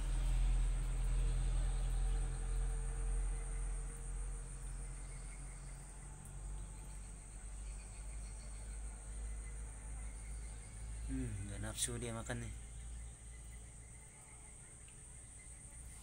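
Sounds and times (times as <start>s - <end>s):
insects chirring: 0.2s - 16.0s.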